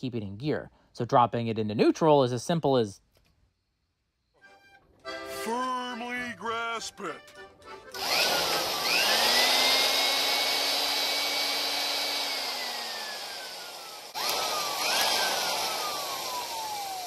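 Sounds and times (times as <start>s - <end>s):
electric drill motor whining: 7.8s - 17.0s.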